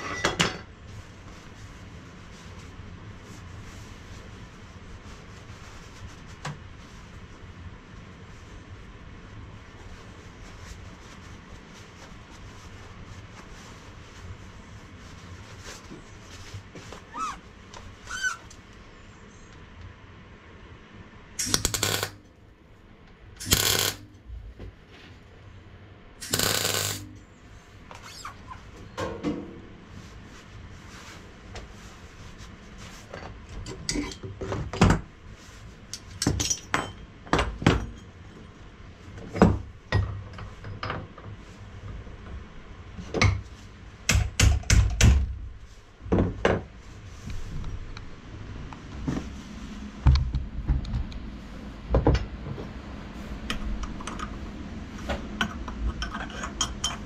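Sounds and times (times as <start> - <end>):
welding tack crackling: 21.4 - 22.2, 23.4 - 24.0, 26.2 - 27.0.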